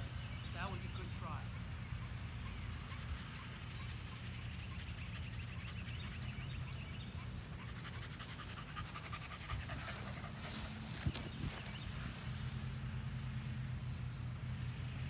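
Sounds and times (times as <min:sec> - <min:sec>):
dog panting: 0:02.9 - 0:11.9.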